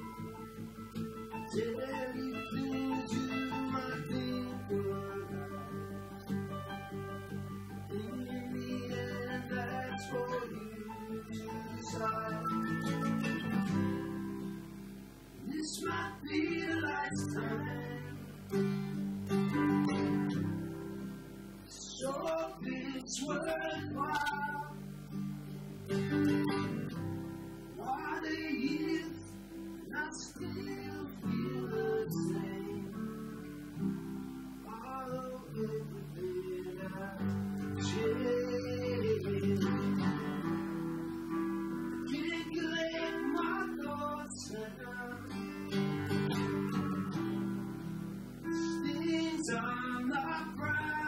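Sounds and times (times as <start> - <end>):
acoustic guitar strummed: 0.0 - 51.0
piano chords: 0.0 - 51.0
person singing: 1.3 - 6.5, 7.7 - 14.2, 15.4 - 18.8, 21.7 - 25.0, 27.7 - 33.8, 34.6 - 40.8, 41.7 - 47.3, 48.4 - 51.0.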